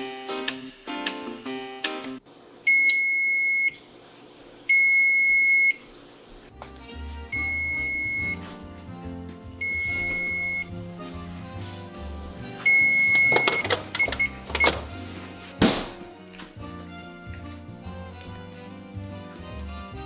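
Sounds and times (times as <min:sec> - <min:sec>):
oven timer beeping: 0:02.7 - 0:03.8, 0:04.7 - 0:05.8, 0:07.4 - 0:08.4, 0:09.6 - 0:10.7, 0:12.6 - 0:14.8.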